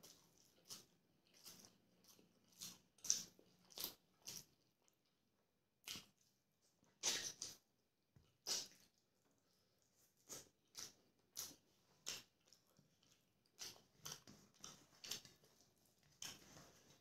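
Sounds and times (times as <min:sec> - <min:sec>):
chewing with wet mouth smacks: 0:00.0 - 0:17.0.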